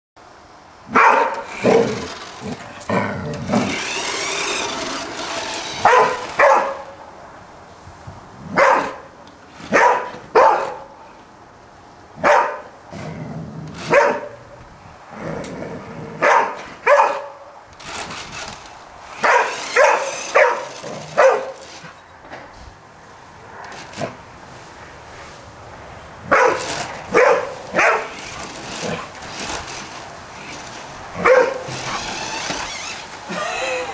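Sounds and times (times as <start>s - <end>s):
dog barking: 0.9s - 1.4s, 5.8s - 6.9s, 8.6s - 9.1s, 9.7s - 10.9s, 12.2s - 12.7s, 13.9s - 14.4s, 16.2s - 17.4s, 19.2s - 21.6s, 26.3s - 28.1s, 31.2s - 31.6s.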